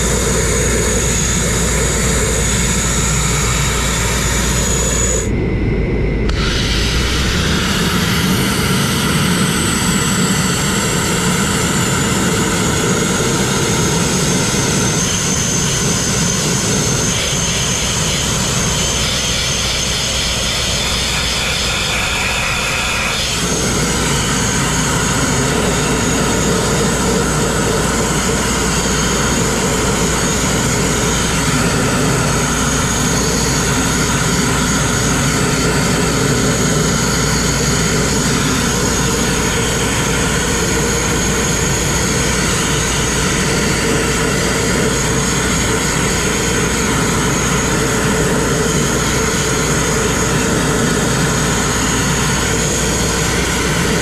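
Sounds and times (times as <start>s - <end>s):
grit blasting nozzle rushing: 6.2s - 54.0s.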